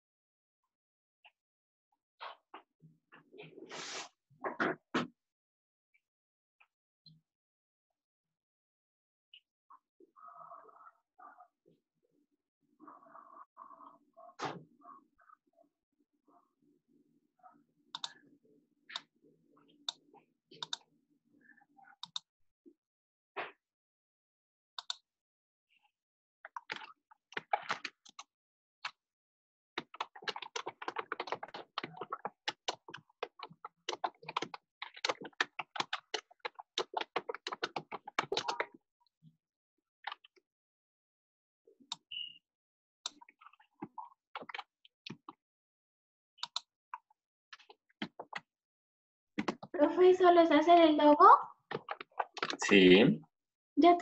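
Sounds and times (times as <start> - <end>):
typing on computer keyboard: 29.8 - 38.8.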